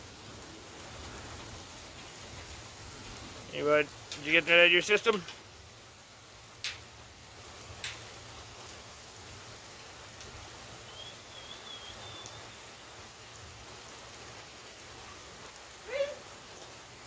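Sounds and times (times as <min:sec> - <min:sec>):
steady rain: 0:00.0 - 0:17.0
faint high wavering whistle: 0:10.8 - 0:12.6.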